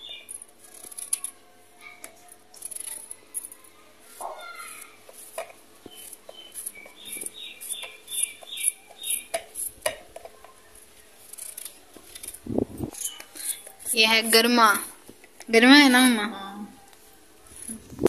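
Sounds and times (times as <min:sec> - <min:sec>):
bird chirping: 0:05.9 - 0:09.4.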